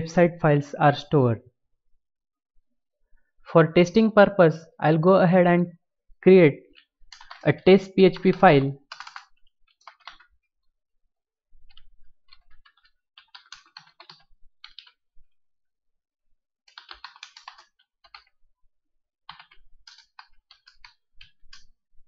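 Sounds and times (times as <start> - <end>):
computer keyboard typing: 6.8 - 10.3, 11.7 - 15.0, 16.7 - 18.4, 19.3 - 21.7.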